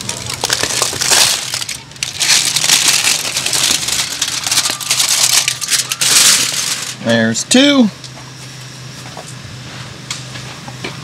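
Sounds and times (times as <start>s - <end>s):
foil pack crinkling and rustling: 0.0s - 7.0s.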